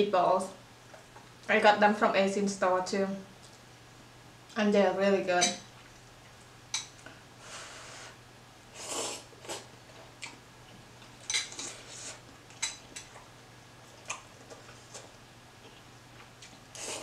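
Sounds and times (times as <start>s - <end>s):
chewing with mouth clicks: 9.4s - 10.4s, 11.0s - 17.0s
slurping noodles: 16.8s - 17.0s.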